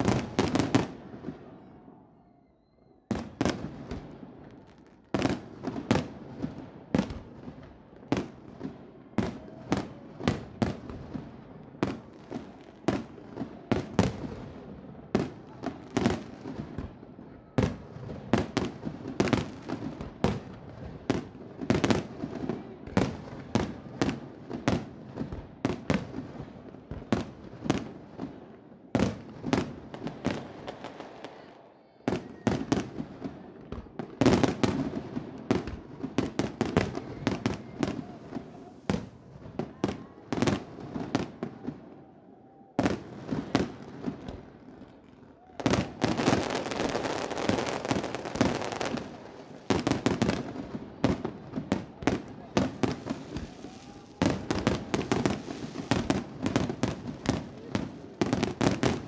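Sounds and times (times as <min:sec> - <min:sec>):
fireworks bangs: 0:00.0 - 0:01.9, 0:32.1 - 0:41.9, 0:45.6 - 0:59.0.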